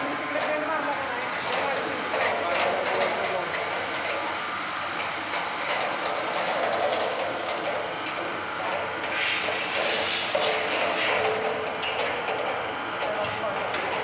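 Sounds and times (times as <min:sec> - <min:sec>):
bucket elevator rattling: 0:00.4 - 0:04.3.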